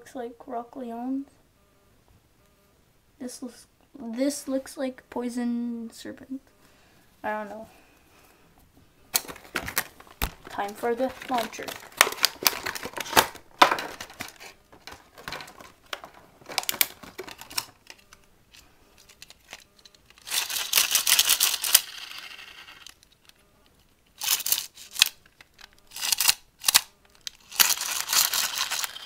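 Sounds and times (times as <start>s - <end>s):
plastic launcher clicks and rattles: 9.1s - 18.1s, 24.2s - 29.0s.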